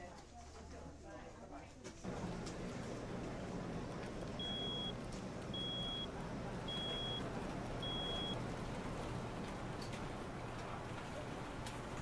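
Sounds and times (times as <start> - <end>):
high-pitched electronic beeps: 4.4 - 4.9.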